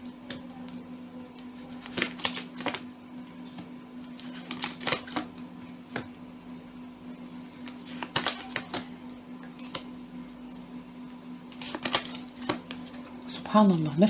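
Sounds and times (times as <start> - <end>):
steady low hum: 0.0 - 14.0
cards being shuffled: 1.4 - 2.9, 3.5 - 6.1, 7.4 - 9.9, 11.1 - 14.0.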